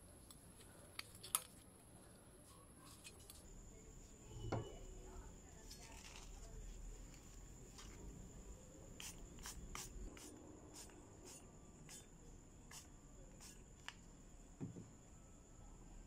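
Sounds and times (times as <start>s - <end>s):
spray bottle spritzing: 9.0s - 12.0s, 12.7s - 13.6s.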